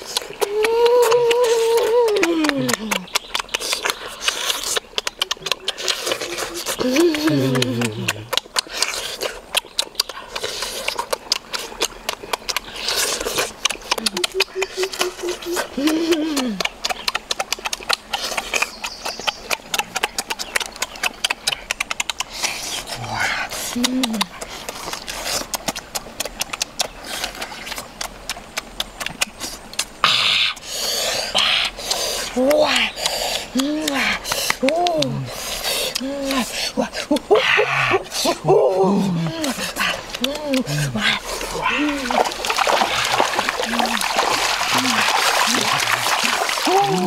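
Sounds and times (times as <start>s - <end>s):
wet chewing and lip-smacking: 0.0s - 47.0s
breathy bursts of breath: 30.6s - 32.3s, 33.0s - 34.6s.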